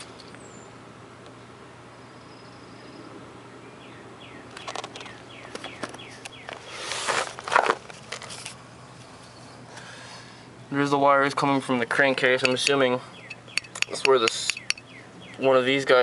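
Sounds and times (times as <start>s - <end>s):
bird chirping falling notes: 3.8s - 6.6s, 12.4s - 15.5s
rustling scrape: 6.6s - 8.6s.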